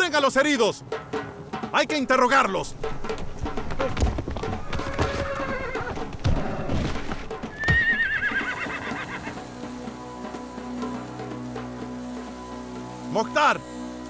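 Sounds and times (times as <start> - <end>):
hooves knocking on ground: 0.4 - 12.9
horses neighing: 2.8 - 9.6.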